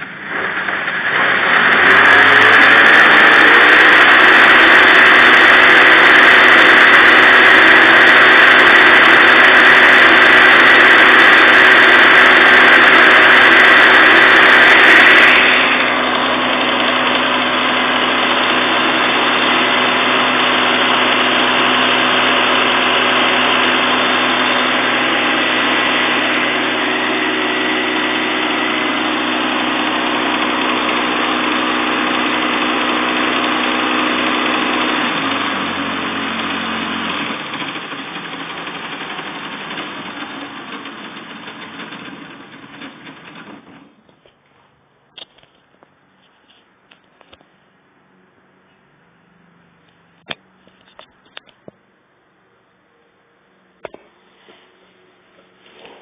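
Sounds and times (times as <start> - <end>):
electric motor whirring whine: 0.0 - 42.1.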